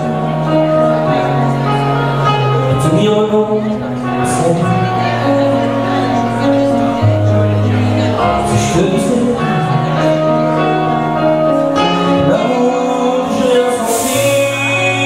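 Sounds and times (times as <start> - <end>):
amplified backing music: 0.0 - 15.0
man singing into microphone: 2.6 - 5.1, 8.2 - 10.3, 11.9 - 15.0.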